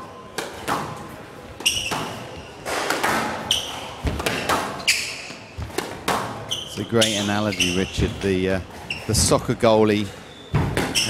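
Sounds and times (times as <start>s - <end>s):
shoes squeaking on floor: 0.2s - 9.4s, 10.0s - 11.0s
squash ball struck by rackets: 0.4s - 1.1s, 1.8s - 6.5s, 10.5s - 11.0s.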